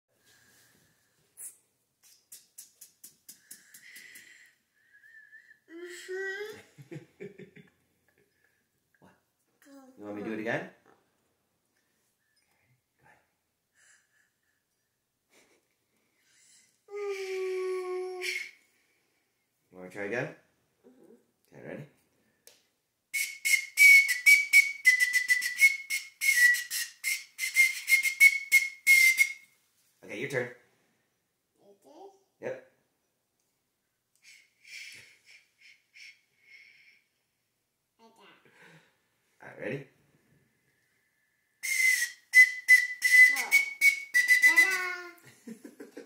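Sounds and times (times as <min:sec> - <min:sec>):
toy recorder toots: 0:23.2 - 0:29.4, 0:41.6 - 0:45.0.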